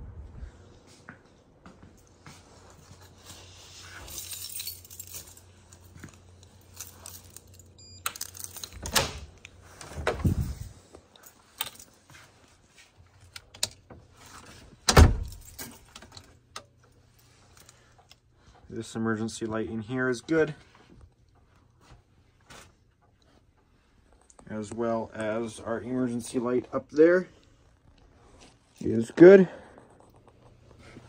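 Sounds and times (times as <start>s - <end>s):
keys jangling: 2.9s - 9.0s, 10.2s - 12.2s, 15.1s - 16.4s.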